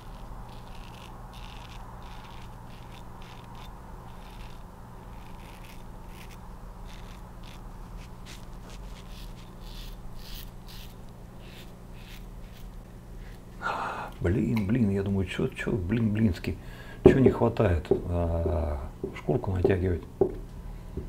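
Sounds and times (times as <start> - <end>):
razor scraping stubble: 0.0 - 13.6
low steady hum: 0.0 - 21.0.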